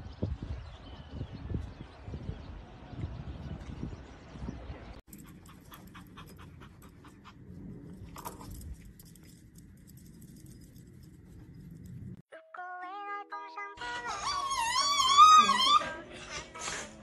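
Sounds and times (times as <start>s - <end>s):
puppy panting: 5.1s - 7.9s.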